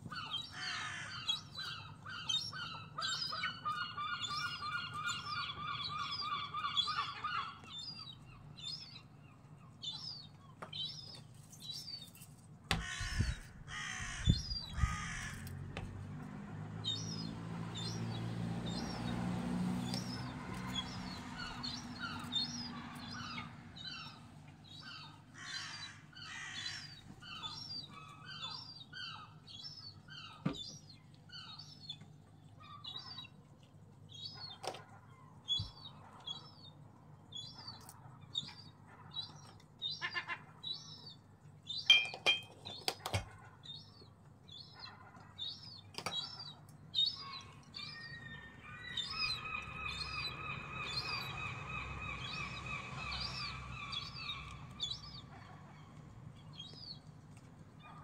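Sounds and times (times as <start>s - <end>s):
seagulls calling: 0.0s - 10.2s, 12.7s - 15.6s, 16.7s - 31.8s, 41.8s - 57.0s.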